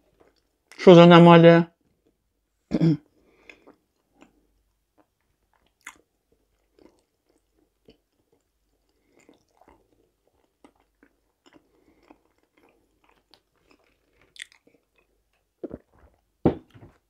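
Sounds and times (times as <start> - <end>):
chewing with wet mouth clicks: 3.4 - 15.9.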